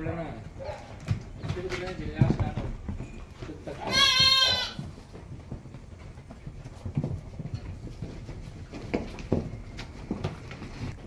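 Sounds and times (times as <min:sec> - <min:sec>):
lamb bleating: 0:03.8 - 0:04.8.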